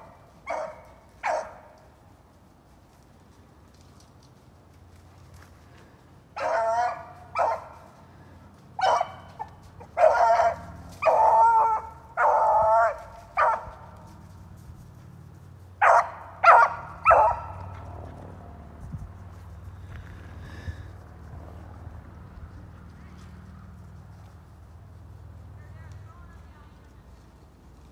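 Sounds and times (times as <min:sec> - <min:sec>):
dog baying: 0:08.8 - 0:13.9.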